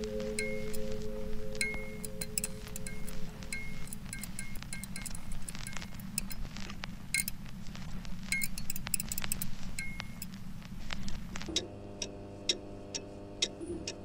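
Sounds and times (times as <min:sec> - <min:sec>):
steady low drone: 0:00.0 - 0:04.6.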